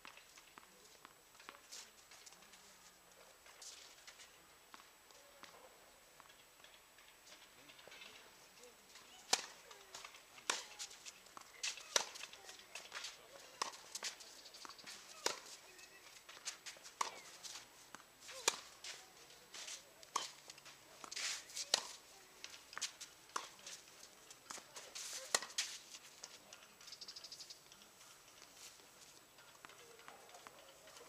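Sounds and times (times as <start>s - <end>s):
tennis ball struck by racquets: 9.3s - 13.0s, 13.6s - 14.0s, 14.7s - 15.5s, 17.0s - 17.2s, 17.9s - 18.8s, 21.0s - 22.0s, 25.3s - 25.6s.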